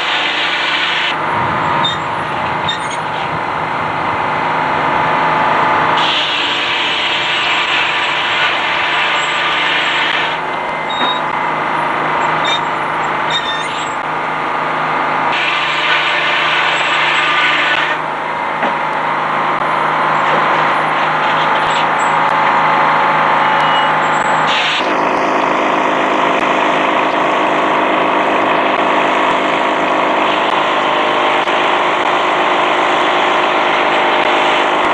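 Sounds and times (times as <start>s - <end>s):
sawmill machine hum: 0.0s - 34.9s
saw blade cutting log: 6.0s - 11.4s, 12.2s - 14.0s, 15.3s - 18.0s.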